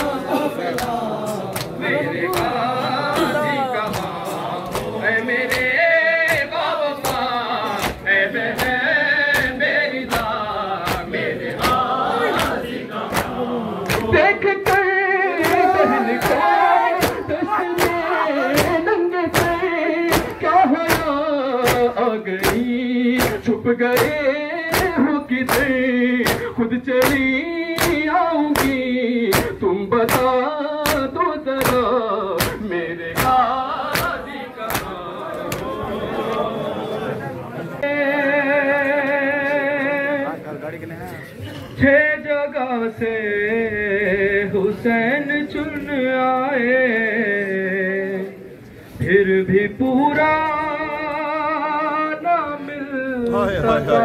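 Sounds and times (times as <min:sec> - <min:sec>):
men chanting in chorus: 0:00.0 - 0:40.4
chest-beating slaps: 0:03.9 - 0:35.7.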